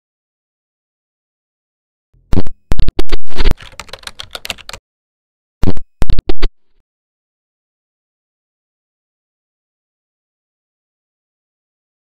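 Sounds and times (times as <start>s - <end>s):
rapid keyboard-like clicking: 3.4s - 4.8s.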